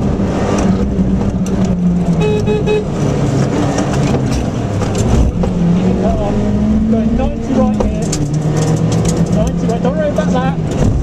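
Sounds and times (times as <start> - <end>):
rally car engine from inside: 0.0 - 11.0
horn-like toots: 2.2 - 2.9.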